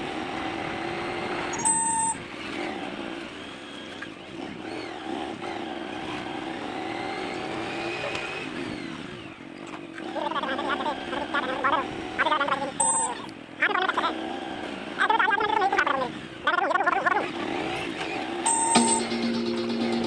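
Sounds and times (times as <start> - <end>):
motorcycle engine running: 0.0 - 20.0
horn beep: 1.6 - 2.2, 12.8 - 13.2, 18.5 - 20.0.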